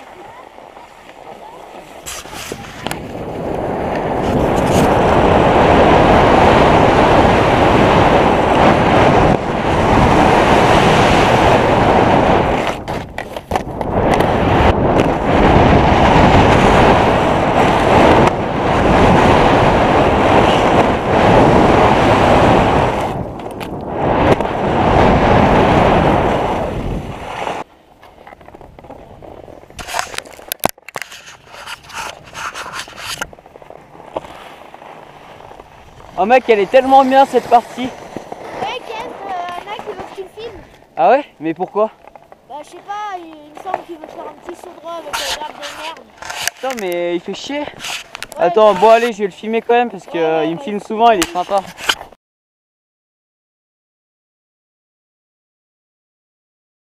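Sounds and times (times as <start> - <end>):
wind buffeting microphone: 0.0 - 27.7, 31.2 - 52.0
faint rubbing: 0.6 - 3.1, 31.0 - 40.8, 41.9 - 49.3
skis hissing on snow: 2.0 - 2.8, 34.2 - 39.2.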